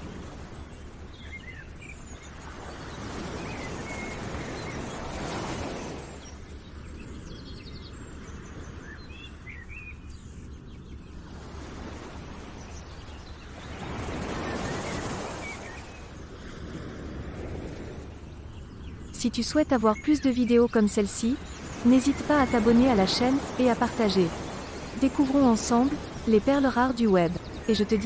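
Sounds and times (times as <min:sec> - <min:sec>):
small birds chirping: 0:00.0 - 0:16.2, 0:17.6 - 0:28.0
steady rushing noise: 0:20.8 - 0:28.0.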